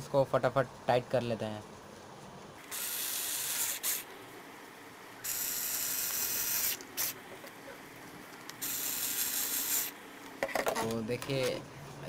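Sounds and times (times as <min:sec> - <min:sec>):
cordless drill whirring: 0:02.6 - 0:04.1, 0:05.2 - 0:07.2, 0:08.6 - 0:10.0.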